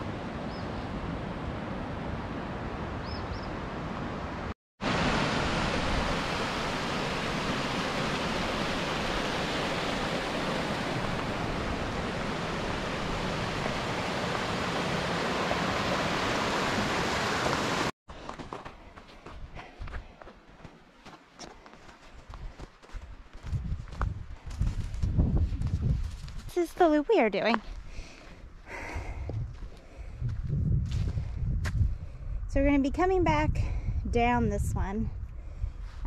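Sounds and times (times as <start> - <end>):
creek water rushing over rocks: 4.8 - 17.9.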